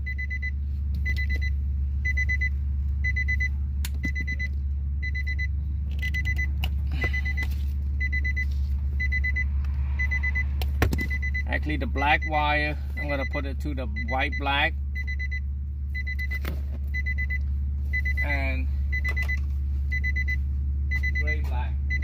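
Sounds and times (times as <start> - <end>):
steady low hum: 0.0 - 22.0
electronic warning chime beeps: 1.1 - 3.5, 4.1 - 10.5, 13.0 - 15.4, 17.0 - 22.0.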